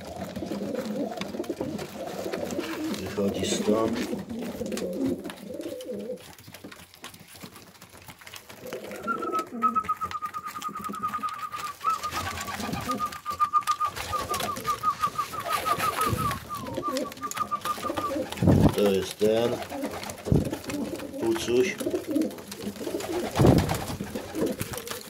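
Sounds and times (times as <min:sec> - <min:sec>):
pigeons cooing: 0:00.0 - 0:06.6, 0:08.3 - 0:25.0
beaks pecking seed: 0:00.0 - 0:25.0
rapid high thin peeps: 0:09.2 - 0:18.6.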